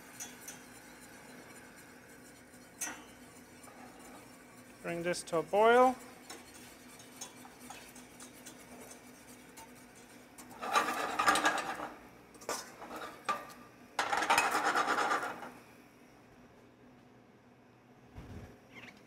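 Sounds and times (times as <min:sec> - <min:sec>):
whisk scraping a metal saucepan: 0:00.1 - 0:13.3.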